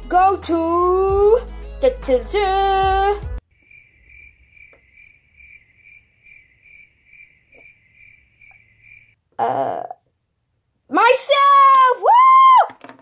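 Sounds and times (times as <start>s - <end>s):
cricket chirping: 3.4s - 9.2s.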